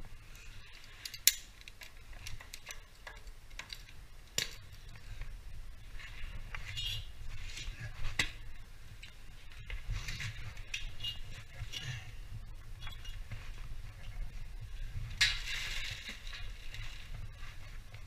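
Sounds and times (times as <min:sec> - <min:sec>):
metal carabiners clinking: 0:00.6 - 0:04.6.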